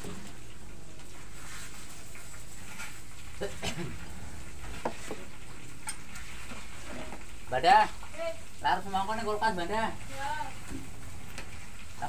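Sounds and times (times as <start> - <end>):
food sizzling in a wok: 0.0 - 12.0
spatula scraping metal pan: 1.3 - 3.2.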